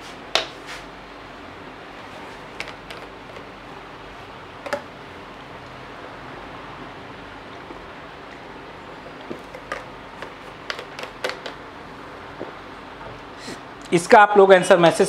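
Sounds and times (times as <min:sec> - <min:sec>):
low room hiss: 0:00.0 - 0:15.0
plastic water bottle clicking: 0:09.3 - 0:11.6.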